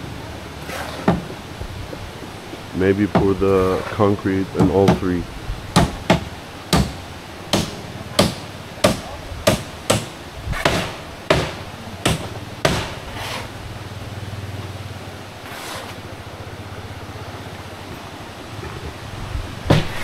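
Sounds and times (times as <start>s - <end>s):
low steady hum: 0.0s - 20.0s
hammer striking nails: 4.6s - 5.1s, 5.8s - 13.4s, 19.7s - 20.0s.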